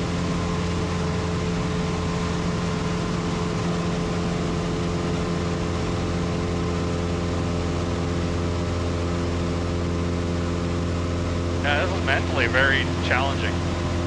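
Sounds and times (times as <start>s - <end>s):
aircraft engine and propeller droning: 0.0s - 14.0s.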